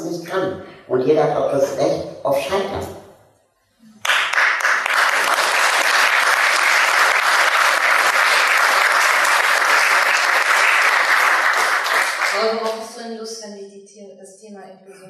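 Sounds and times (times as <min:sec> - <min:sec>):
audience applauding: 0:04.0 - 0:12.8.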